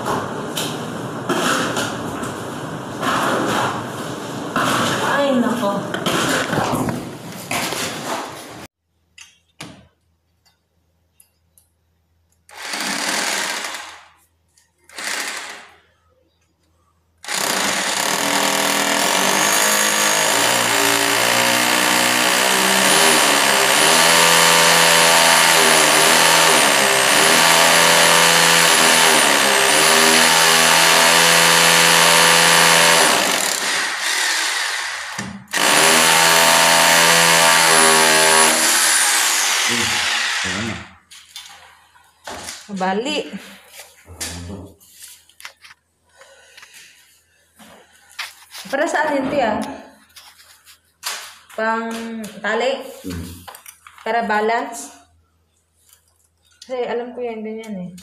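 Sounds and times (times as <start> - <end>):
angle grinder cutting tile: 17.3 - 41.0.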